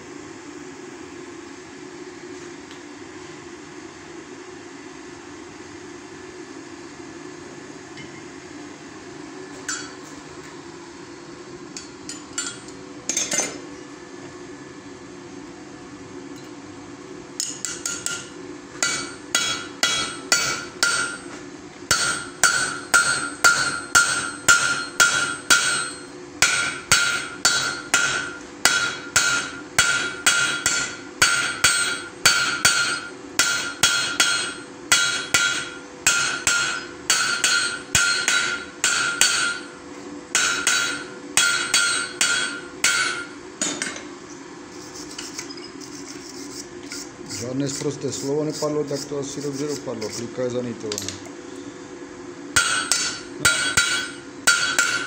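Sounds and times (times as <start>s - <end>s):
hammer ringing on hot rivet: 18.8s - 21.3s, 21.9s - 39.7s, 40.3s - 43.3s, 52.6s - 55.0s.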